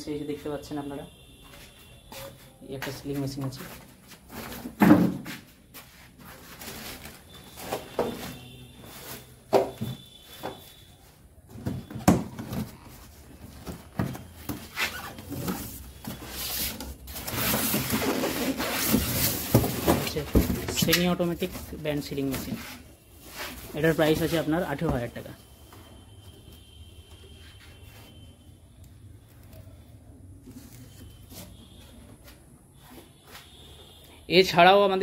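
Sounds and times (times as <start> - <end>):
polystyrene packing rubbing: 5.9 - 9.3, 14.6 - 19.9
cardboard flaps scraping and knocking: 11.5 - 22.8.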